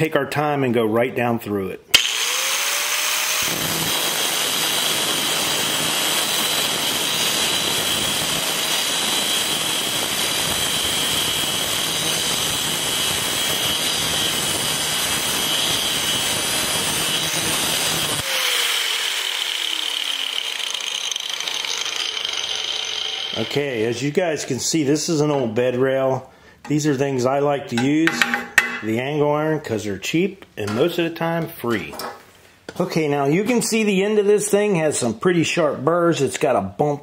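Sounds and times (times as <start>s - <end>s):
grinder motor winding down: 2.0s - 23.6s
angle grinder cutting steel: 2.0s - 23.9s.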